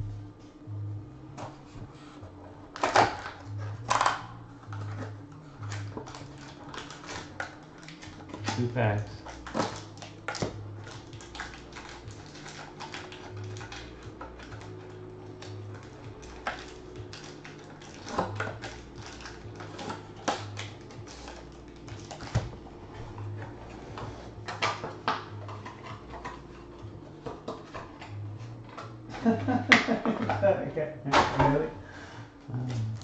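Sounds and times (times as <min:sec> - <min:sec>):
foil wrapper crinkling: 0:04.8 - 0:22.5.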